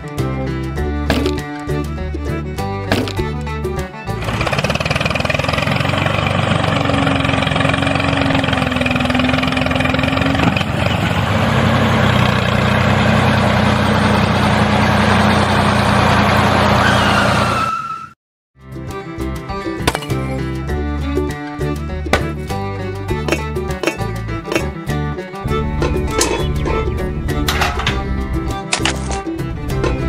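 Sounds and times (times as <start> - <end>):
tractor engine running: 2.9 - 17.5, 25.4 - 30.0.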